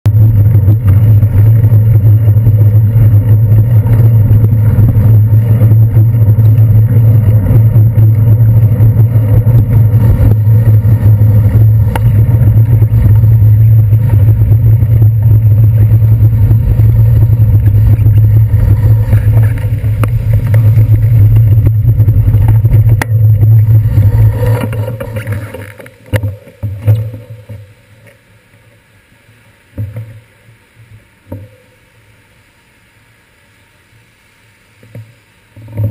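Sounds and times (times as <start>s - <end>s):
wind and road rumble: 0.0s - 28.7s
bike bumps: 0.1s - 28.2s.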